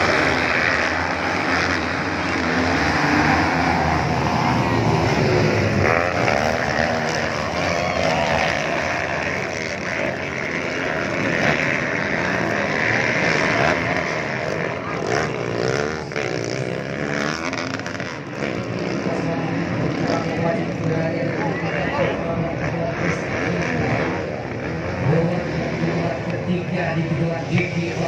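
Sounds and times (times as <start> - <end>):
motocross bikes racing: 0.0 - 28.0.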